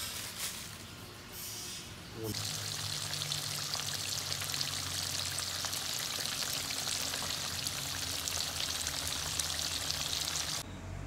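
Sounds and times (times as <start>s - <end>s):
fish deep-frying in hot oil: 2.3s - 10.6s.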